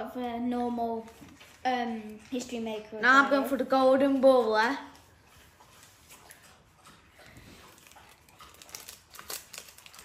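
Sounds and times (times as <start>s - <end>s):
foil packs crinkling and tearing: 7.7s - 10.0s
foil crackles: 7.8s - 10.0s.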